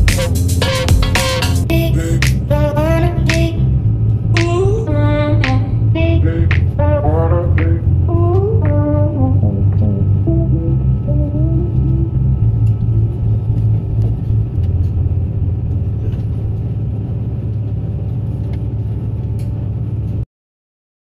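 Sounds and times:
brass tune: 0.0 - 1.7
vehicle rumble inside cabin: 0.0 - 20.2.

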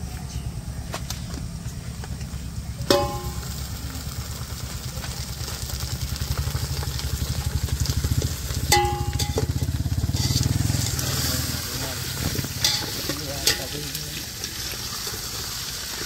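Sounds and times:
chicken frying in oil: 2.8 - 16.0
ladle clanking against metal pot: 8.7 - 9.5, 12.6 - 13.8.

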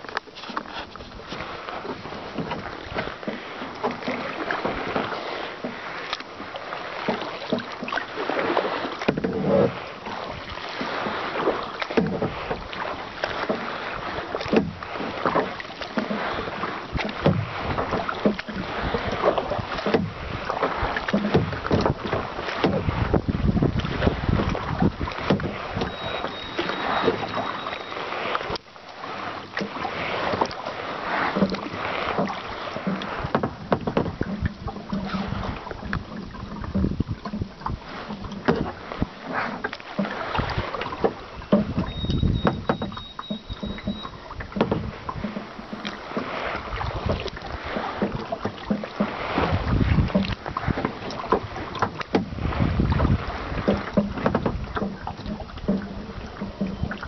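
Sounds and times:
paddle blades splashing: 0.0 - 57.0
water lapping against hull: 0.0 - 57.0.

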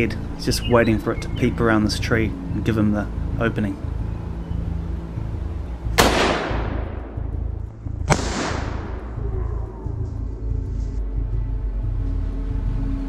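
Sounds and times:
rifle shot cracks: 6.0 - 7.2, 8.0 - 9.0.

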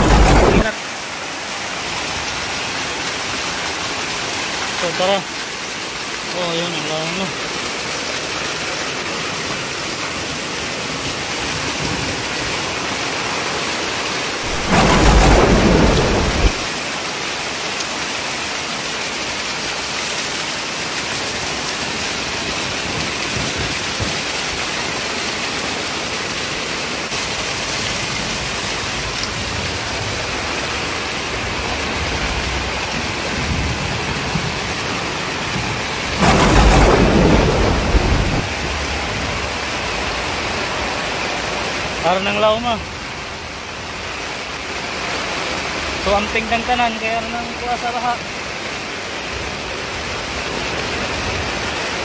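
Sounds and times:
loud deep bursts: 0.0 - 0.8, 14.4 - 16.7, 36.2 - 38.6
water gushing and splashing: 0.0 - 6.3, 7.4 - 42.0
heavy rain pouring: 0.0 - 52.0.

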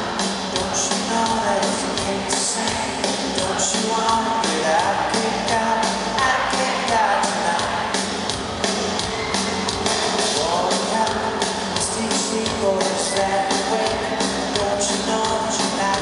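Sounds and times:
person singing: 0.0 - 8.2, 10.2 - 16.0
drum beat: 0.0 - 16.0
guitars and keyboards: 0.0 - 16.0.

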